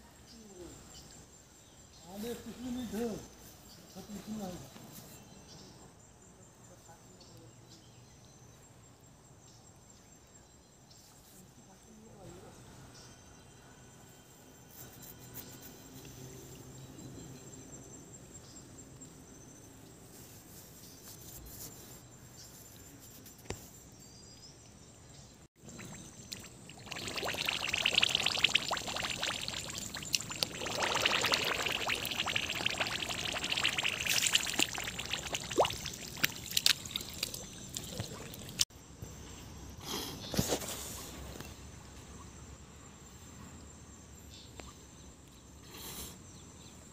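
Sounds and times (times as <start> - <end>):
feet wading through shallow water: 25.6 - 38.6.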